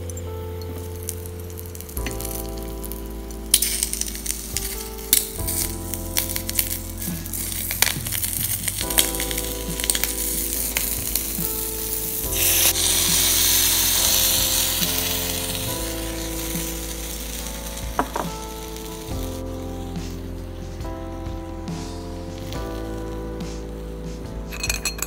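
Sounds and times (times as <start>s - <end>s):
light sizzling: 0.0s - 20.5s
loud sizzling hiss: 0.0s - 25.0s
broth poured into hot pan: 3.5s - 19.2s.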